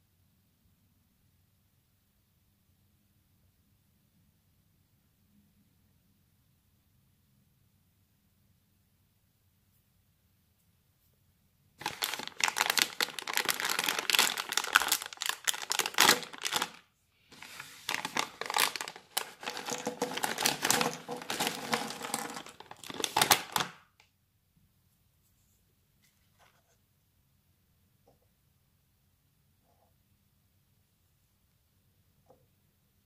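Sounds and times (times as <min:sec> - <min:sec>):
snack bag crinkling: 0:11.8 - 0:23.8.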